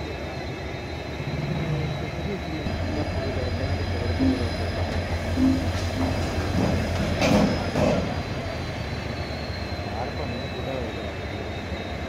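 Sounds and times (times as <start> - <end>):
high wheel squeal: 0.0 - 12.0
low engine rumble: 0.0 - 12.0.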